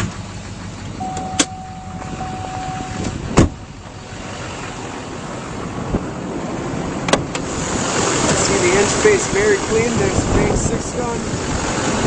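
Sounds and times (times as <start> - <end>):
truck door shutting: 1.0 - 3.7
steady high tone: 1.0 - 4.2.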